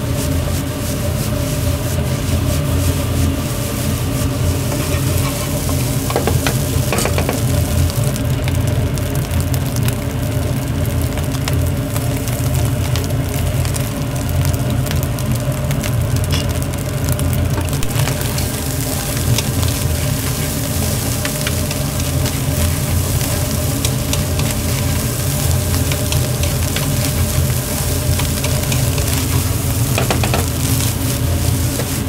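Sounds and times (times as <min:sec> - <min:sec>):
rice sizzling in a wok: 0:00.0 - 0:32.0
spatula scraping a pan: 0:02.0 - 0:07.4, 0:17.9 - 0:32.0
low rumble: 0:16.2 - 0:31.8.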